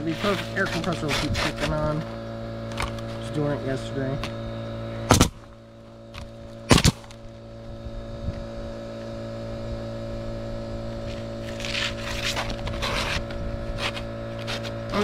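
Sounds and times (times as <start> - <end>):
air compressor humming: 0.0 - 15.0
nail gun firing: 5.1 - 5.4, 6.7 - 7.1.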